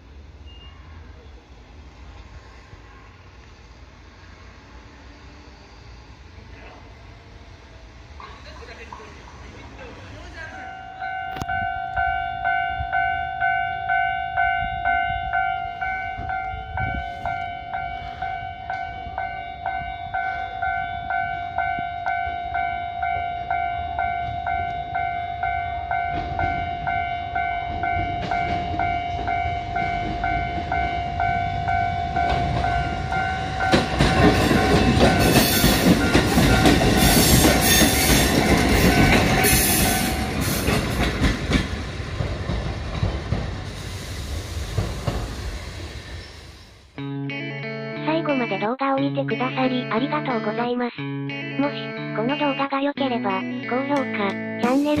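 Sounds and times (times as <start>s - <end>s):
level crossing warning bell: 10.2s - 40.8s
train wheels clattering over rail joints: 32.2s - 43.8s.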